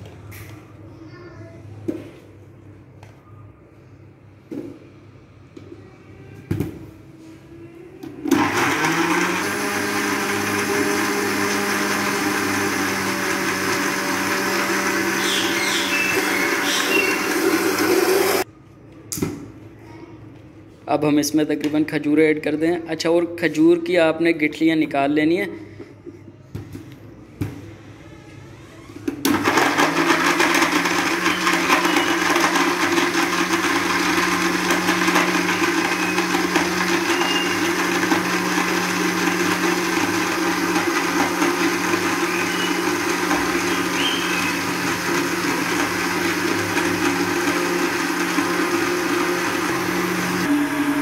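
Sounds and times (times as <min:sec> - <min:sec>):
blender motor humming: 0:08.2 - 0:18.5, 0:28.9 - 0:51.0.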